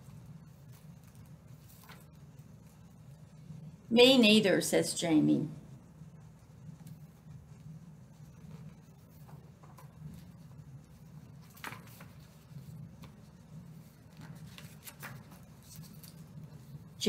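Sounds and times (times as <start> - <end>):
paper pages rustling and turning: 0.0 - 3.2, 8.2 - 17.0
low room hum: 0.0 - 17.0.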